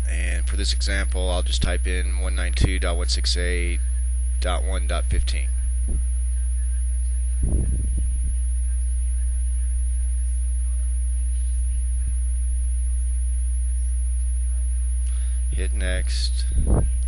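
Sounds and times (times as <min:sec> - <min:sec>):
faint high-pitched whine: 0:00.0 - 0:17.0
low electrical hum: 0:00.0 - 0:17.0
low voice-like sound: 0:05.9 - 0:13.1.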